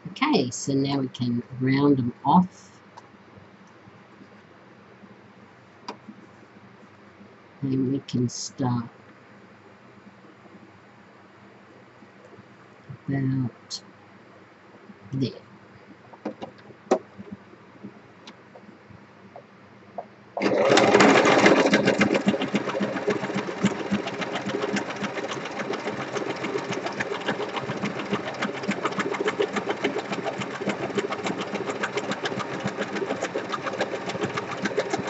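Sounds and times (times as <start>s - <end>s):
sewing machine stitching: 20.4s - 35.0s.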